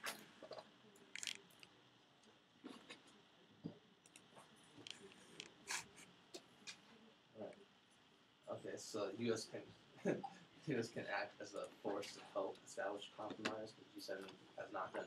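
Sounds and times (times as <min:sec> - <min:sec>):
pens and papers clicking and rustling: 0:01.1 - 0:01.7.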